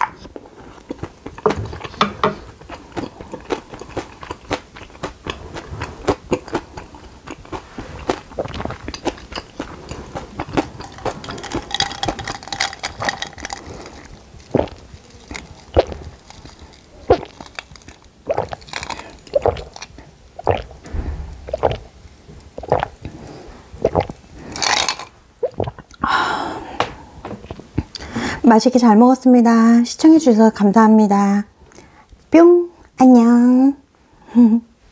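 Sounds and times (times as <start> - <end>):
swallowing gulps through a straw: 5.3 - 12.3, 12.9 - 14.9, 15.6 - 17.5, 18.2 - 21.9, 22.5 - 26.1.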